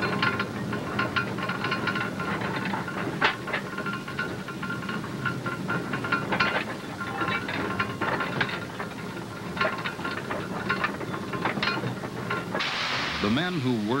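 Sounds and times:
hoist cage rattling and clanking: 0.0s - 14.0s
steady high whine: 12.6s - 14.0s.

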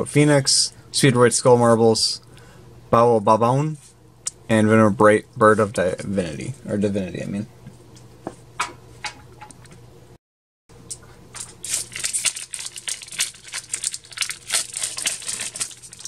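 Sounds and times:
foil wrapper tearing and crinkling: 11.4s - 16.0s.

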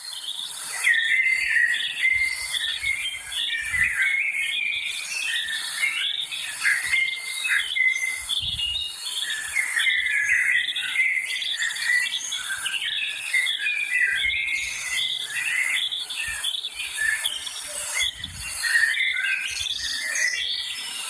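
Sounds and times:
songbirds chirping and warbling: 0.0s - 21.0s
insects hissing: 4.8s - 21.0s.

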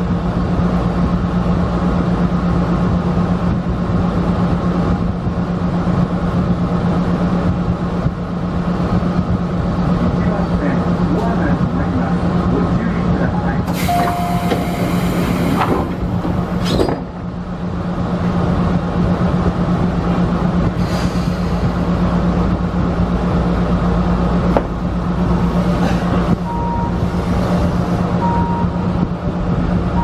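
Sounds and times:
train equipment humming: 0.0s - 30.0s
thin high tone: 13.8s - 15.1s.

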